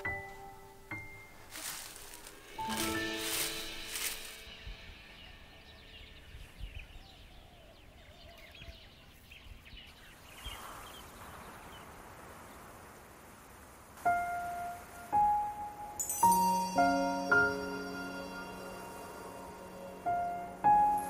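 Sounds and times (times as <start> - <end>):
faint bird chirps: 0.0 - 13.2
light even hiss: 0.0 - 21.0.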